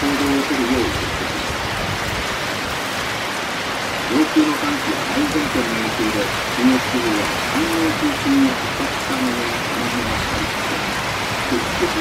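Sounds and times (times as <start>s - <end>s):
heavy rain pouring: 0.0s - 12.0s
low wavering voice-like sound: 4.1s - 12.0s.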